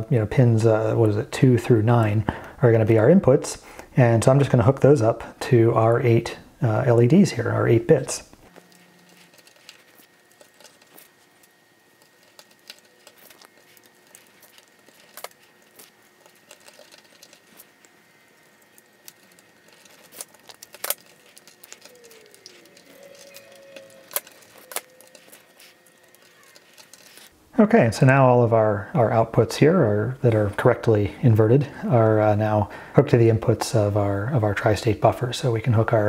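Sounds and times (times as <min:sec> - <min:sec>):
wires clicking into breadboard: 0:12.0 - 0:27.3.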